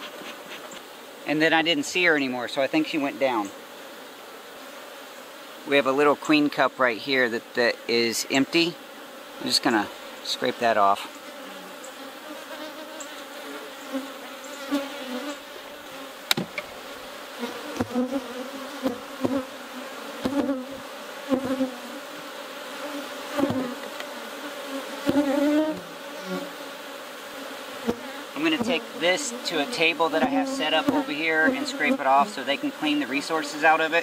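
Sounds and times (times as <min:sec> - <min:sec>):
honeybees buzzing: 0:00.0 - 0:34.0
wooden knocks of hive boxes: 0:15.8 - 0:16.8, 0:17.4 - 0:19.6, 0:20.2 - 0:21.7, 0:23.3 - 0:24.2, 0:25.0 - 0:25.9, 0:27.8 - 0:29.0.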